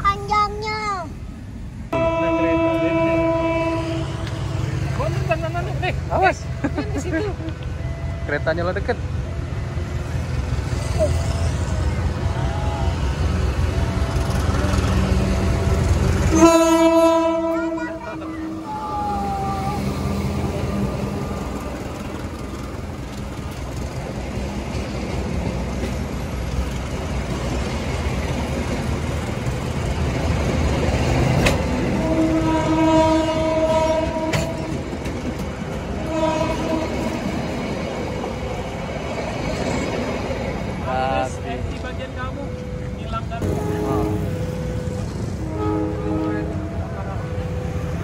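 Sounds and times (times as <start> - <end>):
train coaches rumbling past: 0.0 - 48.0
locomotive horn blast: 1.9 - 5.0, 14.4 - 18.7, 31.8 - 34.8, 36.0 - 37.2, 43.4 - 48.0.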